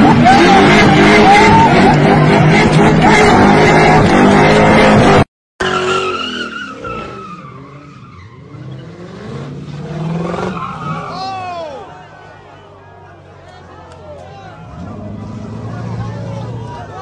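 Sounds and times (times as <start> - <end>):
car engine revving: 0.0 - 6.1, 6.7 - 11.2.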